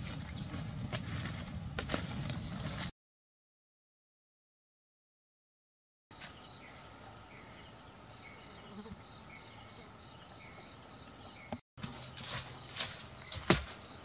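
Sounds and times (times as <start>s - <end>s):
rustling in dry leaves: 0.0s - 2.9s, 11.8s - 14.0s
insect chirps: 6.1s - 14.0s
insects chirring: 6.1s - 14.0s.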